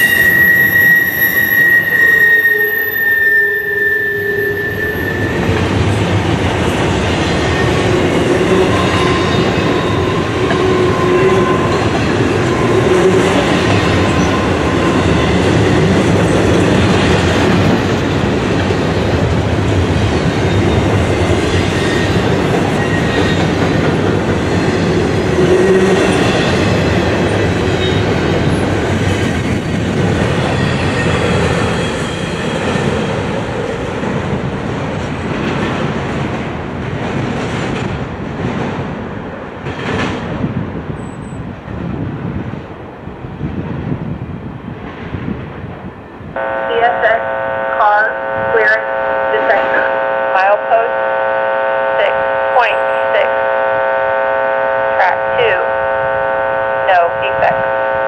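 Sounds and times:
high wheel squeal: 0:00.0 - 0:05.6
freight train wheels rumbling on rail: 0:04.4 - 0:46.7.

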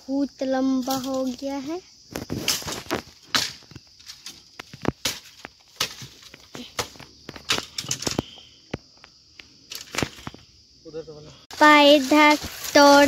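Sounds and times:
bamboo branches cracking: 0:00.8 - 0:01.5, 0:02.1 - 0:08.4, 0:09.0 - 0:10.4, 0:11.5 - 0:13.0.

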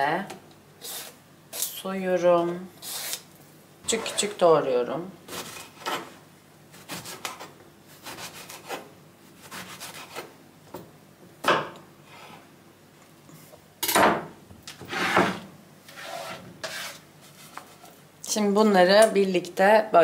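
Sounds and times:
knife scraping cutting board: 0:02.8 - 0:03.2, 0:03.9 - 0:04.4, 0:05.3 - 0:06.2, 0:06.8 - 0:10.3, 0:14.8 - 0:18.0.

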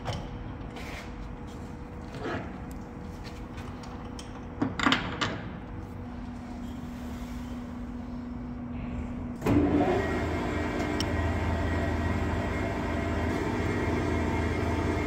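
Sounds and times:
lathe motor humming: 0:09.4 - 0:15.0.

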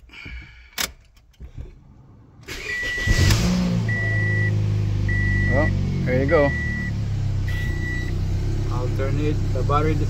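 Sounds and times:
car engine idling: 0:00.0 - 0:10.0
warning chime beeping: 0:02.5 - 0:08.2.

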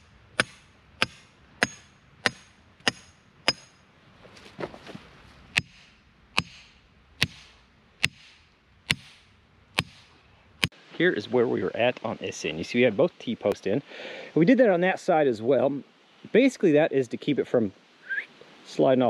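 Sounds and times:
axe hammering metal rod: 0:00.0 - 0:03.9, 0:05.5 - 0:10.7.

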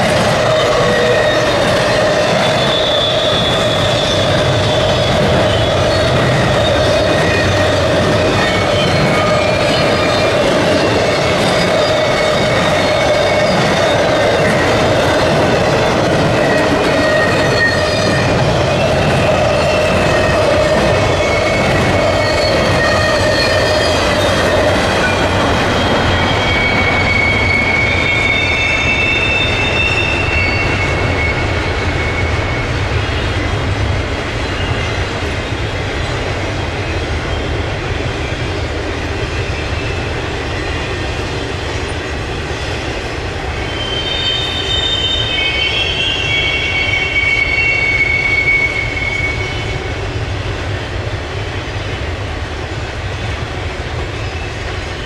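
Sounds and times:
freight train wheels rumbling: 0:00.0 - 0:55.0
high thin wheel squeals: 0:00.4 - 0:32.9, 0:43.6 - 0:50.0.

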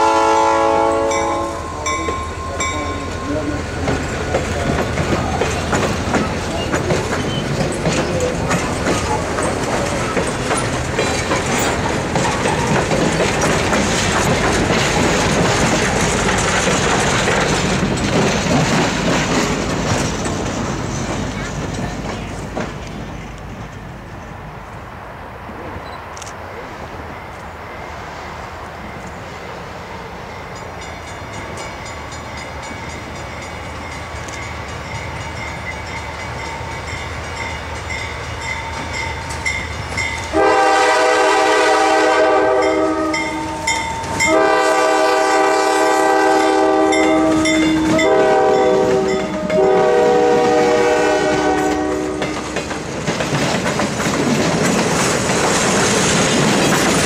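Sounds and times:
locomotive air horn blasts: 0:00.0 - 0:01.8, 0:40.3 - 0:52.4
diesel locomotive engine rumble: 0:00.0 - 0:57.0
train wheels on rails: 0:00.0 - 0:57.0.

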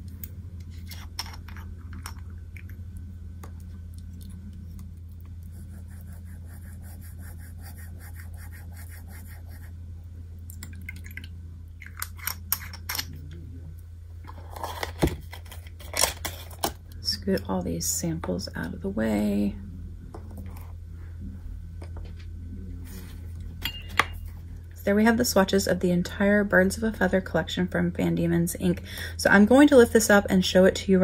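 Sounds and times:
steady low hum: 0:00.0 - 0:31.0
paintbrush strokes on paper: 0:05.5 - 0:09.7.

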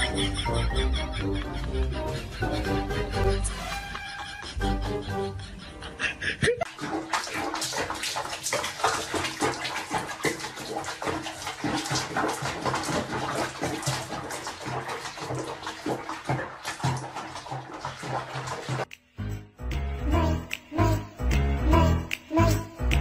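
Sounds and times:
water splashing in a basin: 0:06.6 - 0:18.9.

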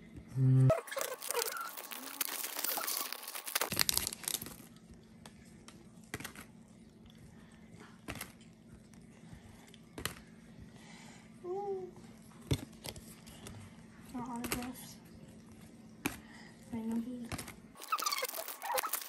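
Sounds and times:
foil wrapper crinkling and tearing: 0:00.7 - 0:05.0, 0:17.8 - 0:19.0
cards flipping with clicks: 0:05.2 - 0:06.5, 0:17.3 - 0:19.0.

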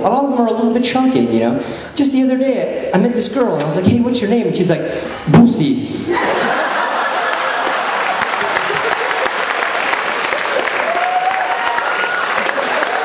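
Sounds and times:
audience laughing and applauding: 0:06.1 - 0:13.0.

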